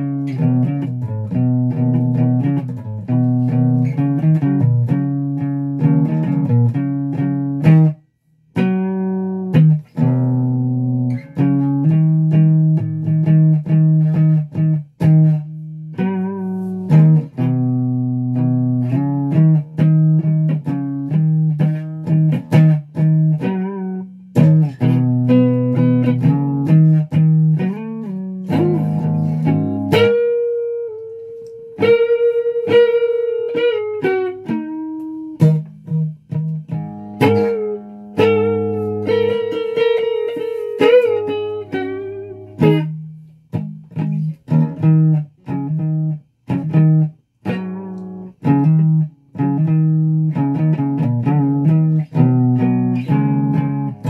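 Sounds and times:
electric guitar playing: 0:00.0 - 0:54.0.

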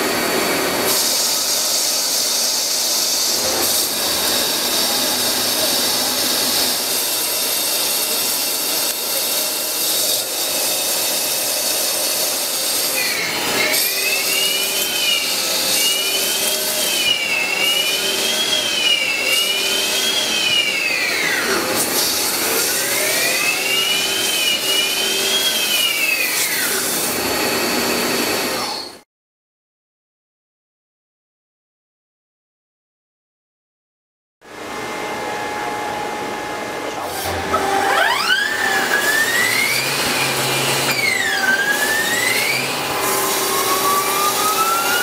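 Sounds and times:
lathe machining hiss: 0:00.0 - 0:28.2.

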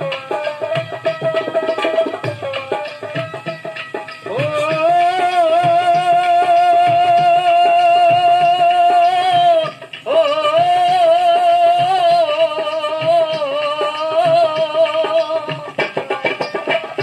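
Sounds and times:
voices singing long notes: 0:04.2 - 0:16.0.

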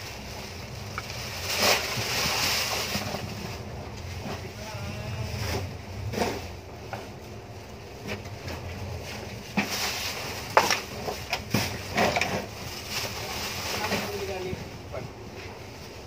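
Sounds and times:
plastic garbage bags rustling: 0:00.0 - 0:06.6, 0:07.5 - 0:14.9
low wind rumble: 0:00.0 - 0:16.0.

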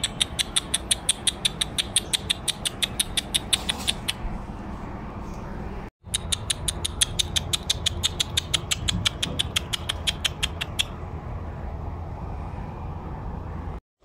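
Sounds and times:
rapid clicking to call cats: 0:00.0 - 0:04.3, 0:06.0 - 0:11.0.

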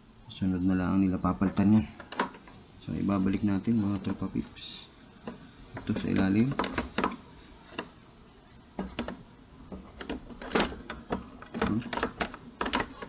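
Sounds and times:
plastic knocks clicks and scrapes: 0:01.4 - 0:02.6, 0:05.2 - 0:08.0, 0:08.7 - 0:13.0.

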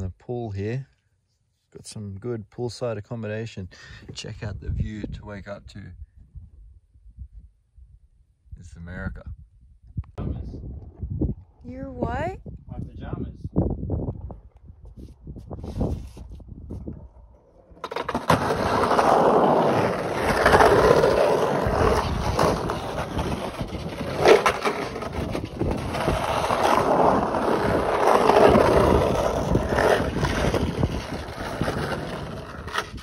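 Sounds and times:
skateboard wheels rolling on concrete: 0:14.2 - 0:33.0.

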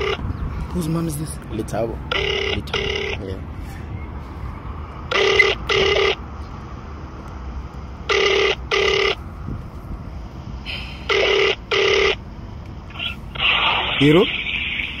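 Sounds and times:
telephone ringback tone: 0:00.0 - 0:00.2, 0:02.1 - 0:03.2, 0:05.1 - 0:06.2, 0:08.1 - 0:09.2, 0:11.1 - 0:12.2.

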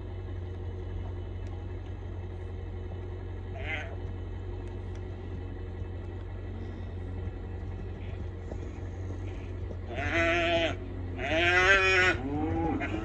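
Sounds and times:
steady low rumble: 0:00.0 - 0:13.0
calf bawling: 0:03.4 - 0:04.2, 0:06.3 - 0:13.0.

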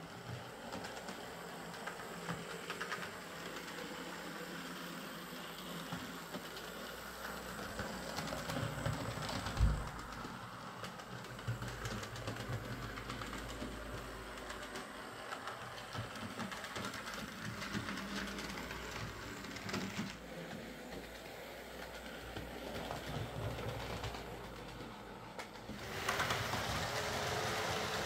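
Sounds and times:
model train running on track: 0:00.0 - 0:28.0
fast patter of light clicks: 0:07.7 - 0:20.2.

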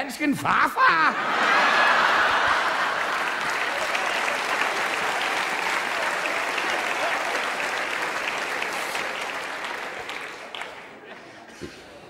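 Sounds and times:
audience laughing: 0:00.6 - 0:10.2
audience applauding: 0:01.2 - 0:11.4.

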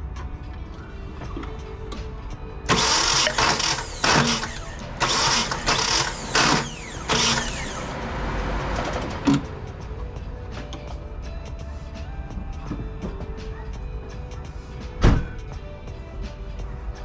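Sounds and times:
engine cranking on starter: 0:02.7 - 0:09.6.

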